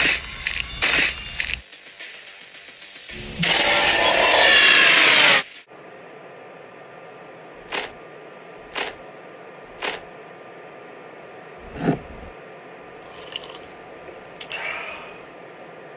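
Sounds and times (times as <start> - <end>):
footsteps: 11.6 - 12.4.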